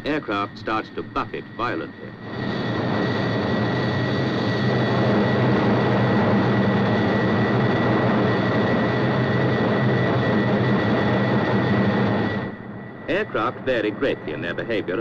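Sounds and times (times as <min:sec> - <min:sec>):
high steady jet whine: 0:00.0 - 0:15.0
jet engine roar in cockpit: 0:00.0 - 0:15.0.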